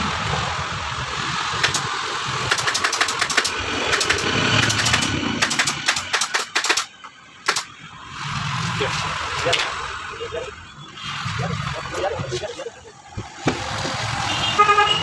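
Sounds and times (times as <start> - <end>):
pneumatic staple gun firing: 1.6 - 7.7.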